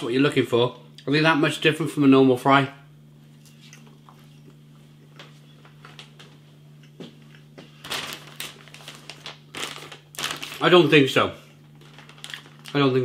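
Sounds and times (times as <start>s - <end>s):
plastic bag crinkling: 7.7s - 13.0s.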